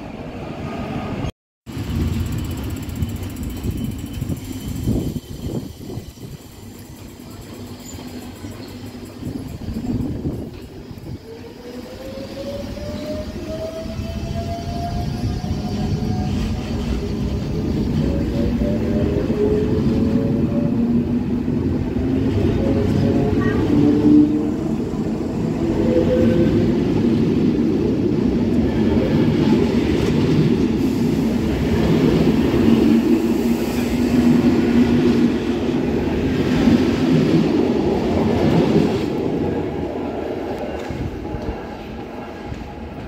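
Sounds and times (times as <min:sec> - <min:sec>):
train wheels rumbling on rails: 0:00.9 - 0:43.0
wheels squealing: 0:01.7 - 0:20.0.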